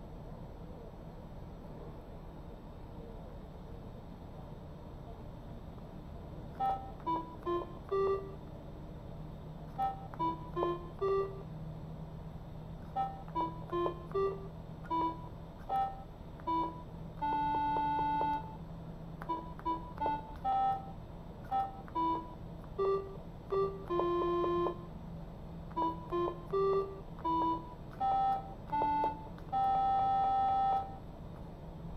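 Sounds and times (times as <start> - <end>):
electronic keyboard beeping tune: 6.5 - 8.5, 9.7 - 11.5, 12.8 - 25.0, 25.7 - 31.1.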